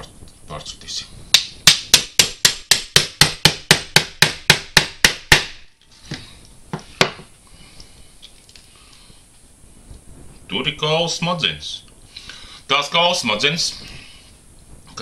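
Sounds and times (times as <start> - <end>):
hammer knocking on cleaver: 1.4 - 5.5.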